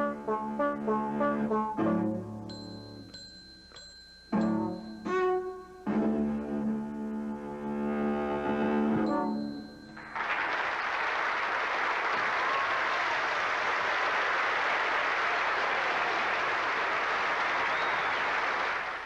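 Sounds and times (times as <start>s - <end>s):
audience applauding: 10.0s - 19.0s.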